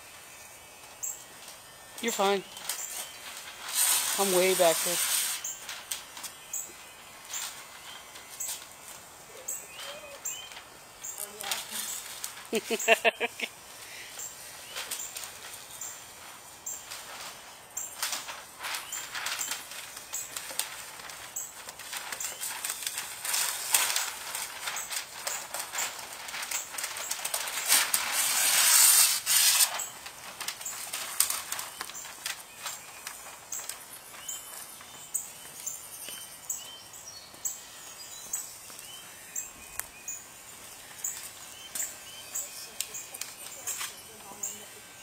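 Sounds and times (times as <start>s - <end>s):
small birds chirping: 2.0s - 8.7s, 9.3s - 18.2s, 29.8s - 45.0s.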